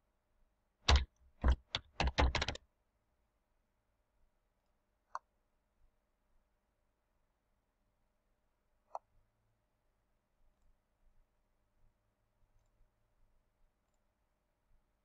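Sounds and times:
keyboard typing: 0.9s - 2.6s.

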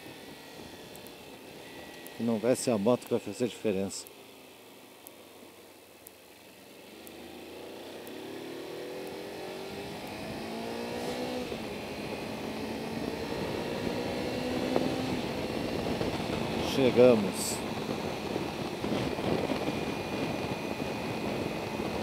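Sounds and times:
motorcycle engine accelerating: 6.4s - 22.0s
wind noise: 9.5s - 22.0s.

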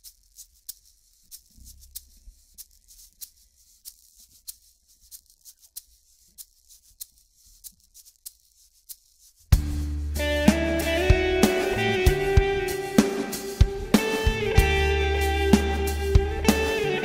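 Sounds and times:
loud guitar and drums music: 9.6s - 17.0s.

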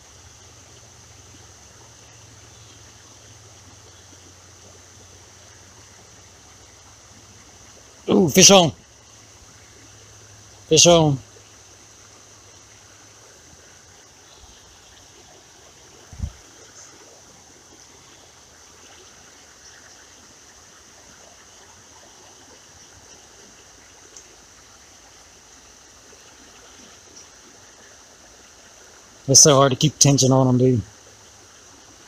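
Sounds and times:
creek trickling over stones: 0.0s - 32.0s.

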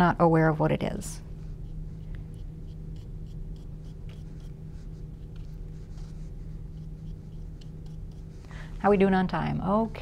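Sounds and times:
steady low hum: 0.0s - 10.0s
paintbrush scratchy strokes on canvas: 1.4s - 8.5s.

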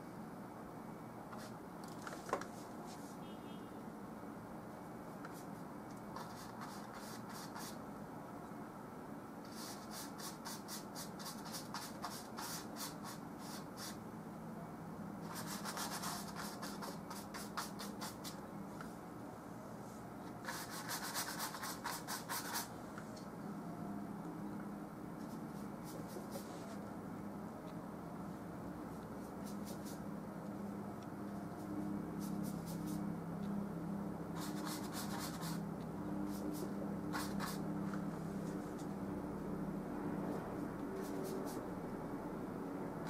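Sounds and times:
paintbrush scratching on canvas: 34.4s - 35.6s, 36.3s - 37.6s.

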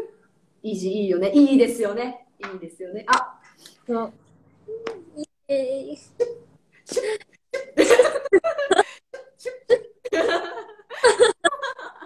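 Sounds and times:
women laughing: 7.8s - 12.0s.

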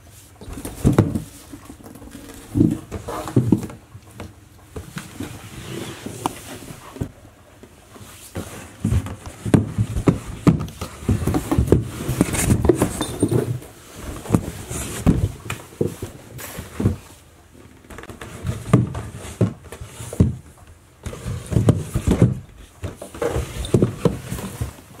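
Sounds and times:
cardboard box scraping on wooden floor: 5.0s - 7.0s.

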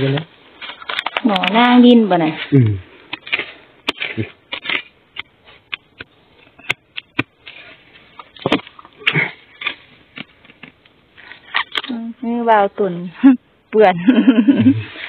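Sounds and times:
dry leaves rustling: 0.5s - 5.7s.

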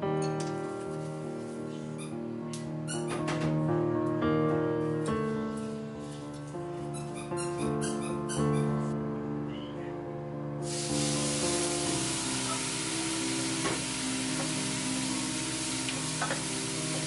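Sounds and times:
background music: 0.0s - 17.0s
liquid sizzling in hot pan: 10.6s - 17.0s.

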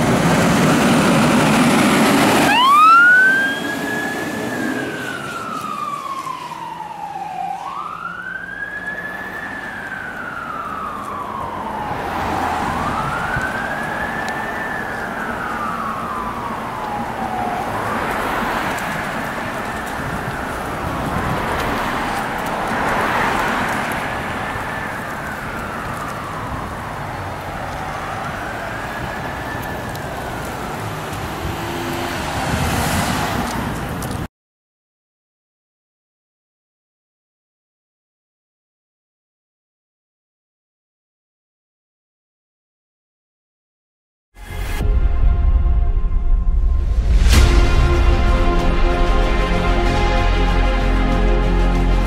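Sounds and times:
siren wailing: 0.0s - 33.0s
diesel fire engine pulling away: 0.0s - 34.3s, 44.5s - 52.0s.

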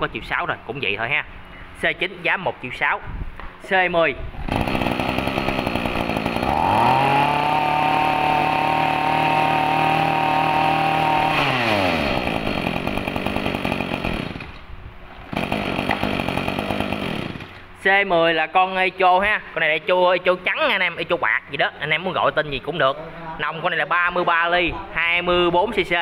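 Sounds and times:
brush cutter engine revving: 4.5s - 14.7s, 15.3s - 17.7s.

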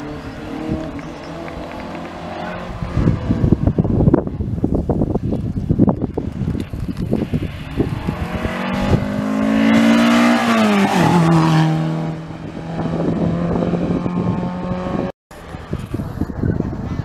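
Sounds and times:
rally car accelerating past: 7.4s - 15.1s.

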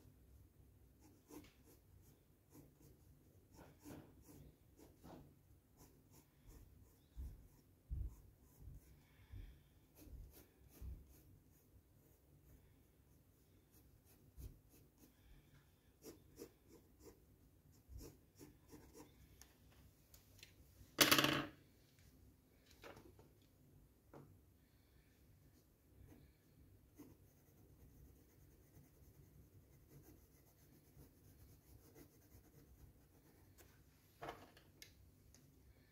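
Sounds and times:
pencil scratching on paper: 1.0s - 19.3s, 25.6s - 33.8s.

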